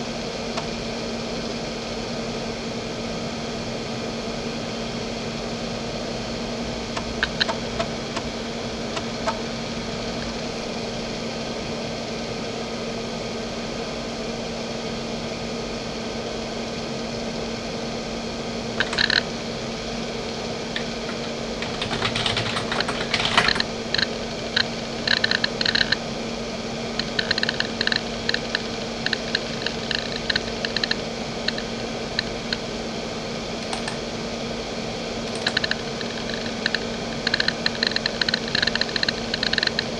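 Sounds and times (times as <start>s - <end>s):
steady hum: 0.0s - 39.9s
hard drive heads clicking: 7.0s - 8.3s, 18.8s - 19.3s, 20.3s - 26.0s, 27.0s - 32.7s, 33.6s - 34.0s, 35.3s - 39.9s.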